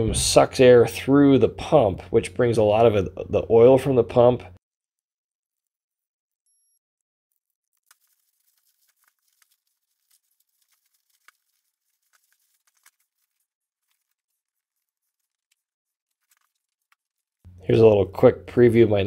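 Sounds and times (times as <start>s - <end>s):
plastic sheeting crinkling: 7.4s - 17.4s.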